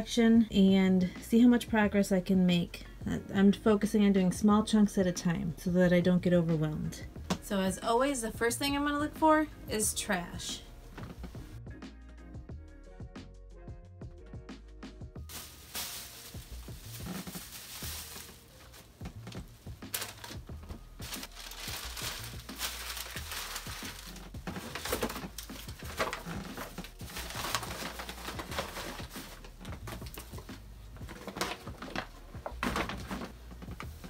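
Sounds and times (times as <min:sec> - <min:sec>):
plastic bags crinkling: 0:15.3 - 0:34.0.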